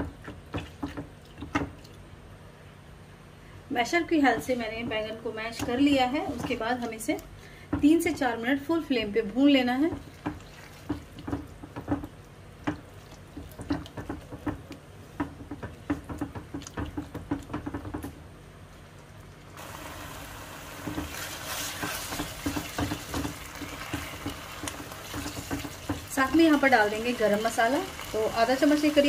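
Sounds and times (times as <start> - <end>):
frying sizzle: 19.2 - 29.0
spoon tapping and scraping a pan: 20.8 - 26.7.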